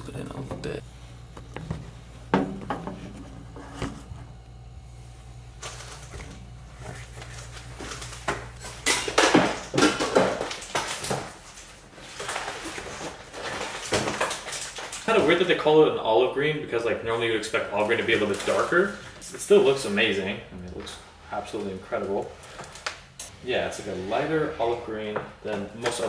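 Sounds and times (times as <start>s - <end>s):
plastic film rustling and crackling: 6.7s - 15.8s, 17.5s - 19.6s.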